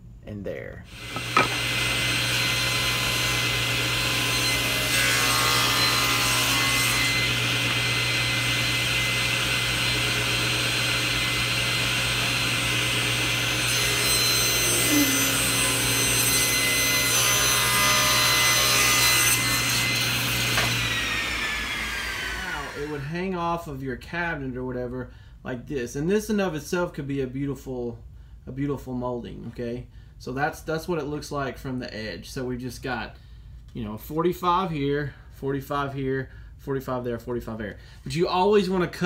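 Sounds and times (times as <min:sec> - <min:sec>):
table saw cutting wood: 0:00.9 - 0:23.1.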